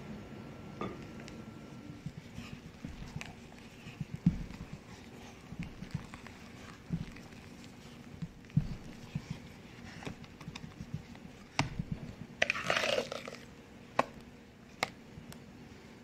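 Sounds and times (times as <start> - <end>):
wet scraping and squelching: 12.4 - 13.5.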